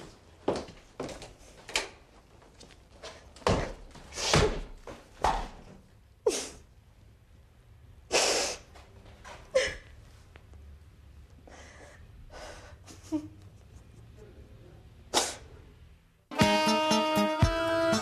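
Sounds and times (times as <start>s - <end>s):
woman sobbing: 12.5s - 13.4s.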